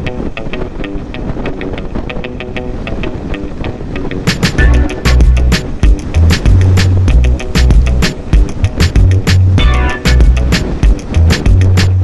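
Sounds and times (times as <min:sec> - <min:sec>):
background music with light percussion: 0:04.3 - 0:12.0
heavy drums and bass: 0:04.3 - 0:12.0.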